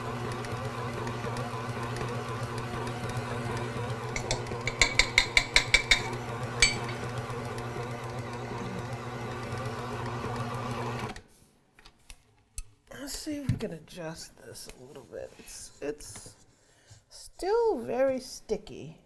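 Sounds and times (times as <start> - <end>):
stand mixer humming: 0.0 - 11.2
measuring cups clinking: 4.1 - 7.1.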